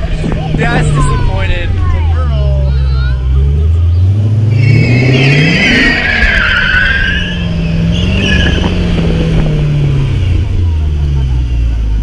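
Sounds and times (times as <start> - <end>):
car engine at high revs: 0.0 - 12.0
tyres squealing: 3.1 - 9.2.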